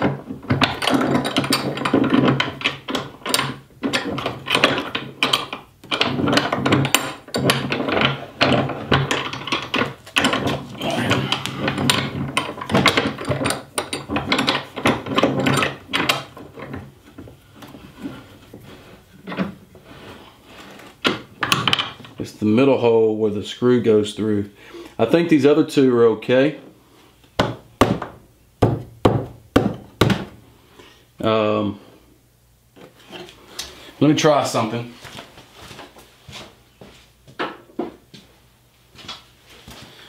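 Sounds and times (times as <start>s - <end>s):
metal rods knocking in wood: 0.0s - 18.2s
wood on metal scraping: 0.0s - 22.3s, 32.8s - 33.9s.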